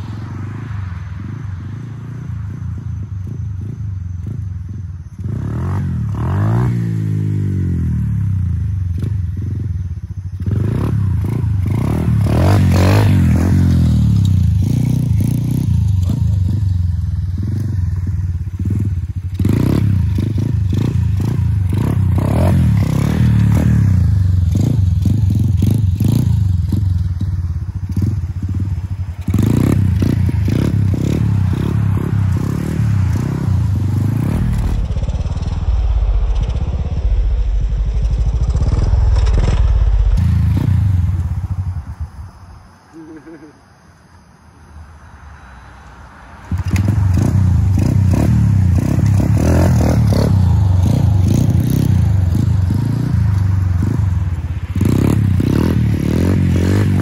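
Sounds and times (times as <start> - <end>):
motorbike engine revving hard: 10.4 - 17.7, 18.5 - 26.9, 29.3 - 35.4, 46.5 - 54.2, 54.8 - 57.0.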